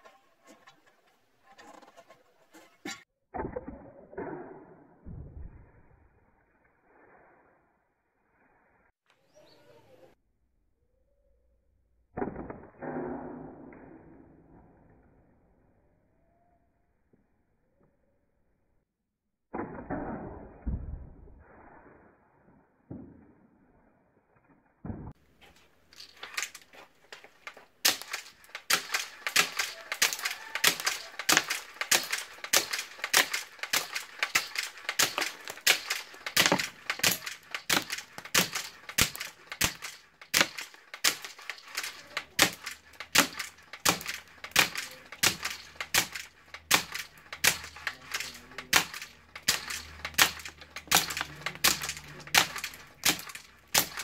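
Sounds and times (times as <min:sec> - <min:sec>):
steel balls cracking into wood: 0:24.2 - 0:54.0.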